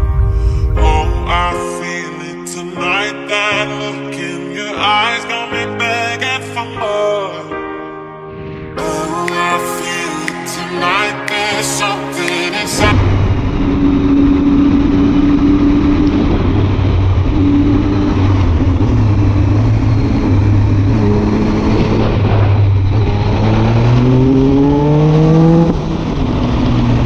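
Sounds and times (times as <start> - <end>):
wind rush: 0.0 - 1.6, 12.8 - 27.0
motorcycle engine accelerating: 12.8 - 27.0.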